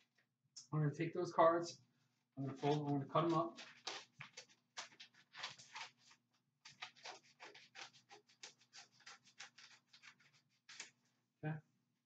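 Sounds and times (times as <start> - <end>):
paper being cut: 2.6 - 11.0.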